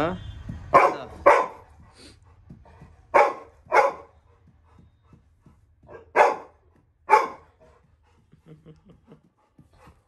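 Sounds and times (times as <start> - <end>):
dog barking: 0.7 - 1.8, 3.1 - 4.2, 5.9 - 7.6.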